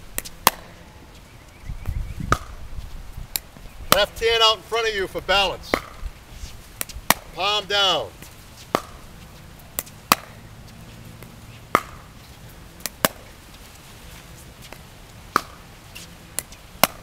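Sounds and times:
paddle hitting plastic ball: 0.2 - 0.8, 5.7 - 6.0, 8.2 - 9.1, 9.8 - 10.4, 11.2 - 12.1, 12.8 - 13.3, 14.7 - 15.6, 16.4 - 17.0.

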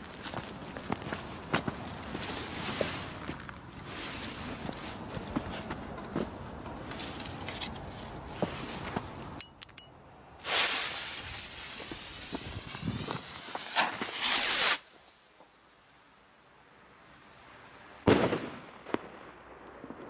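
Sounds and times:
footsteps on the ground: 0.0 - 9.4, 10.4 - 14.2
rocket launching whoosh: 12.5 - 14.9.

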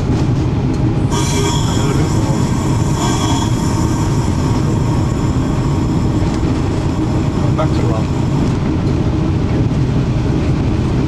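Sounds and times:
locomotive engines droning: 0.0 - 11.0
wheel flange squeal: 1.0 - 7.1.

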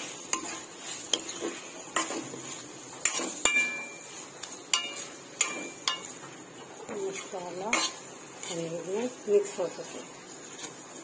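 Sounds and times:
spatula scraping metal pan: 0.0 - 6.2, 7.1 - 8.9
faint steady sizzle: 0.0 - 11.0.

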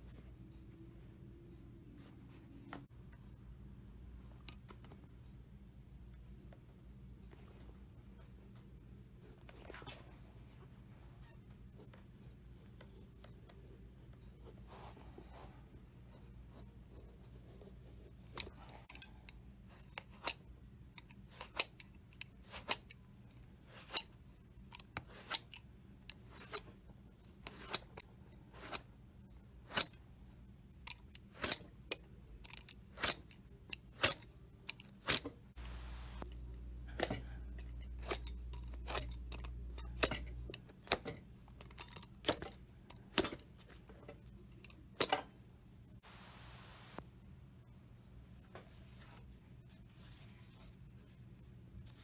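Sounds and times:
hand tool clicks and snips: 30.9 - 35.3
low hum: 35.6 - 40.6.

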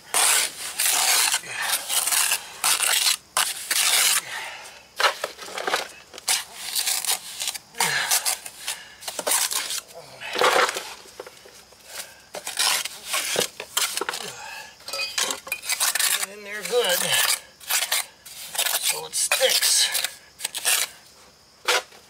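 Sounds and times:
trowel scraping on concrete: 0.1 - 4.2, 5.0 - 9.8, 12.4 - 14.3, 14.9 - 21.0.

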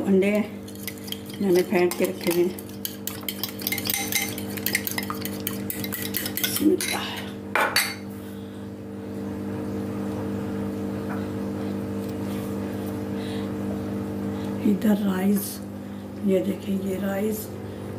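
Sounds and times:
metal utensil clinking in bowl: 0.7 - 7.0.

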